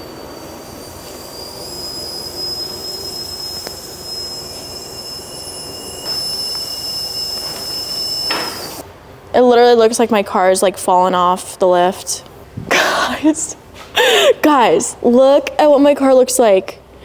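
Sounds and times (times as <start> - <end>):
lower hydraulic tone: 0.0 - 8.8
hydraulic car lift whining: 0.0 - 8.9.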